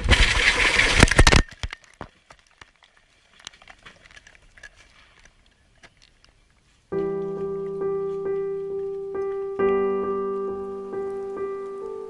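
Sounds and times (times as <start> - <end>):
loud crashing and crackling: 0.0 - 1.7
faint crackles and rustling: 0.0 - 12.0.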